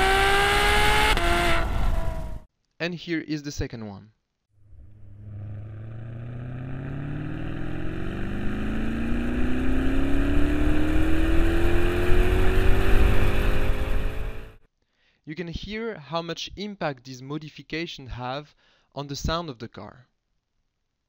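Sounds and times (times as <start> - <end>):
car engine accelerating: 0.0 - 2.4, 4.6 - 14.6.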